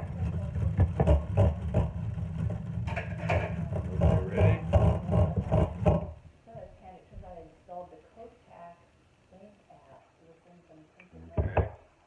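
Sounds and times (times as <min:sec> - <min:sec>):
egg beater clattering in bowl: 0:00.0 - 0:06.1.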